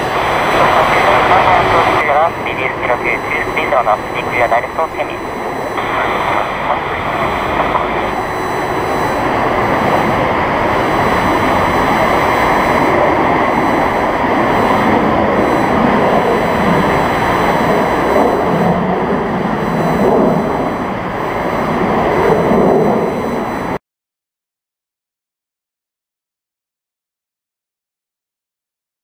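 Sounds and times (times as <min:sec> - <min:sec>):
jet engines roaring: 0:00.0 - 0:23.8.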